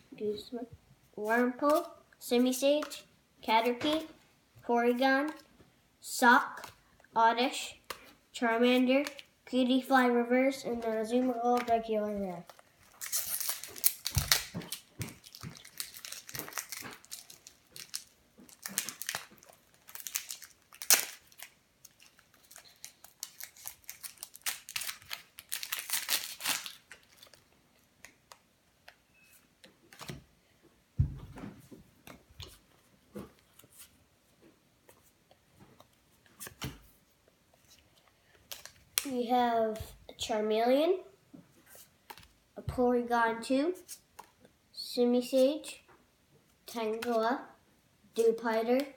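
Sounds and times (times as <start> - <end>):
foil wrapper tearing and crinkling: 12.8 - 28.2, 38.5 - 39.1
thump: 31.0 - 31.6.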